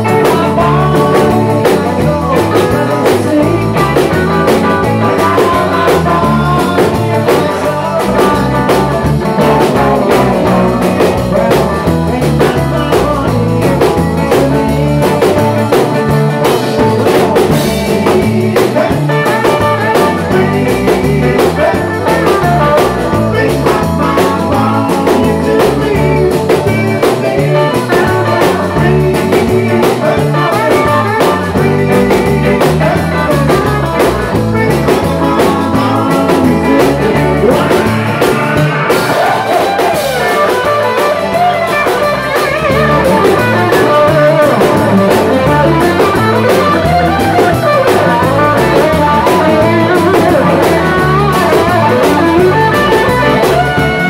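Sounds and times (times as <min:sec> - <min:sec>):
lead electric guitar bending lines: 0:00.0 - 0:54.0
live rock band playing: 0:00.0 - 0:54.0
person singing: 0:00.0 - 0:54.0.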